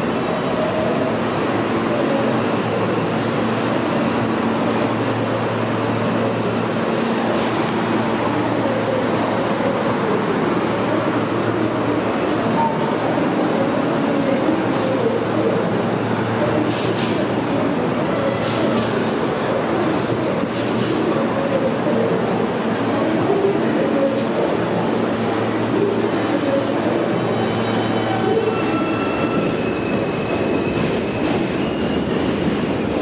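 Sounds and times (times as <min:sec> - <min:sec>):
subway train rumbling slowly: 0:00.0 - 0:33.0.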